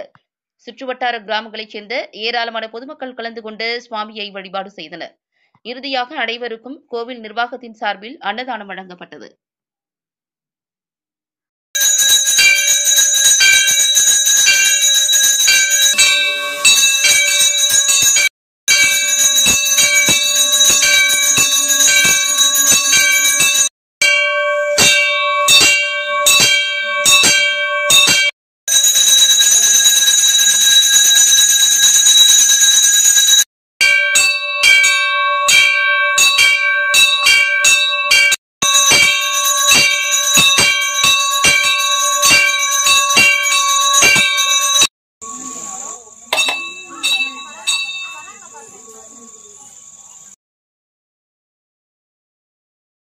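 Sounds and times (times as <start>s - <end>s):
temple bells ringing rapidly: 11.8s - 49.6s.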